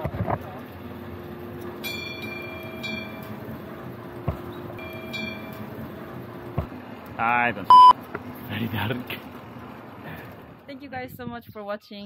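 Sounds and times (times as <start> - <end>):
cable car motor hum: 0.0 - 11.3
high beep: 7.7 - 7.9.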